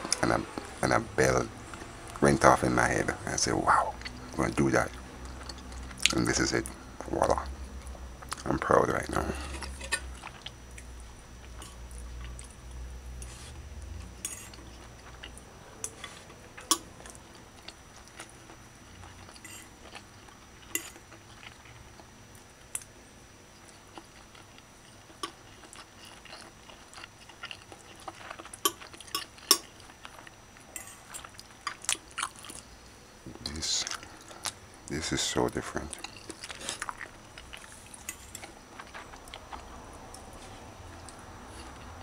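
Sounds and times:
fork clinking and scraping plate: 14.2s - 14.6s.

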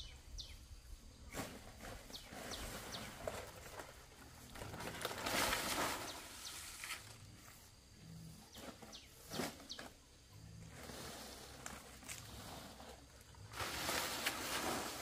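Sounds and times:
dry palm fronds rustling: 1.3s - 7.3s, 10.7s - 15.0s.

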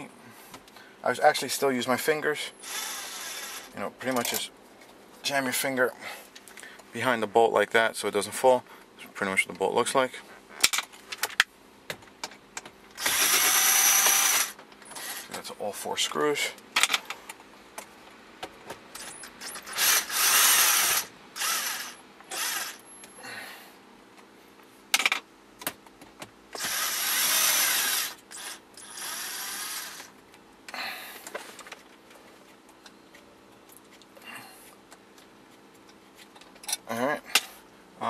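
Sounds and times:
cordless power driver motor: 2.6s - 3.7s, 13.0s - 15.3s, 19.6s - 22.9s, 26.6s - 30.1s.

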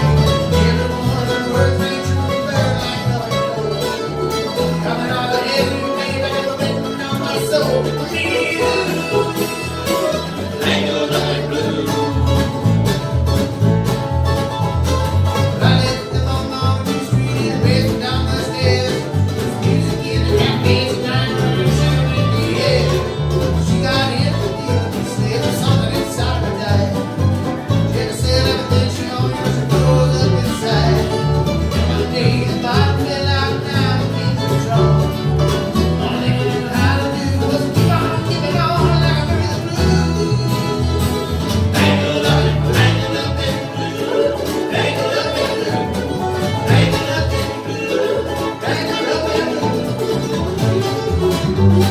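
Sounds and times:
bluegrass string band playing: 0.0s - 51.9s.

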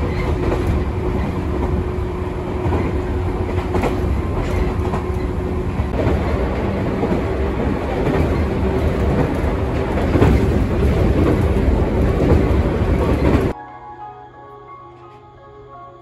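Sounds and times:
clacks over rail joints: 0.0s - 1.9s, 2.5s - 13.5s
train wheels rumbling on rail: 0.0s - 13.6s.

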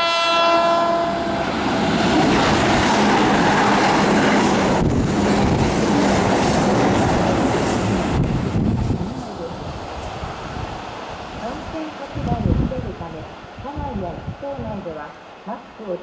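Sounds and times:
train horn: 0.0s - 1.6s
train passing at speed: 0.0s - 14.7s.

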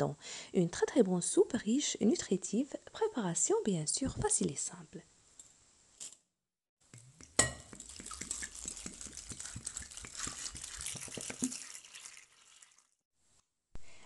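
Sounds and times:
water pouring over chickpeas: 7.2s - 13.0s.

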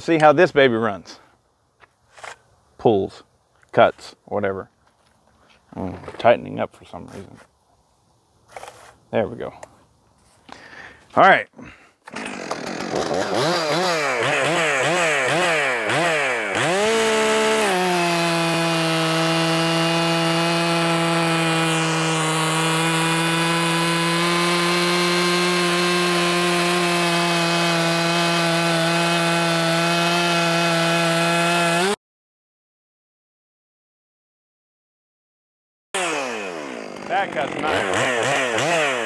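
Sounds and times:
chainsaw revving and cutting log: 12.0s - 32.0s, 36.0s - 39.0s.

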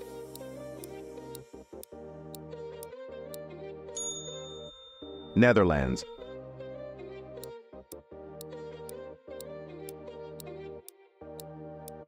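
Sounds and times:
quiz background music: 0.0s - 12.0s
bright ding chime: 4.0s - 6.1s.

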